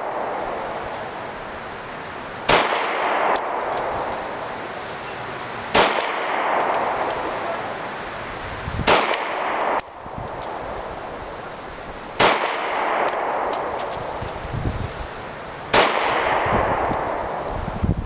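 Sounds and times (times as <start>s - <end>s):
pistol shots echoing: 2.5s - 4.5s, 5.7s - 7.8s, 8.9s - 10.8s, 12.2s - 14.2s, 15.7s - 17.5s.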